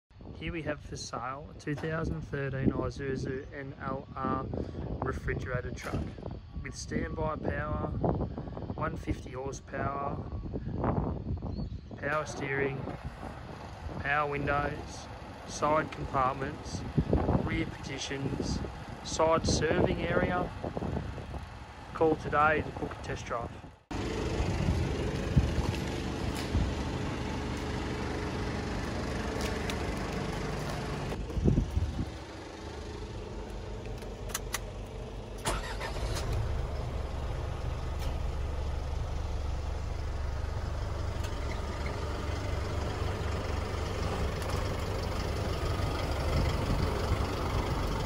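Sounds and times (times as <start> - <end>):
diesel engine idling: 12.0 - 48.0.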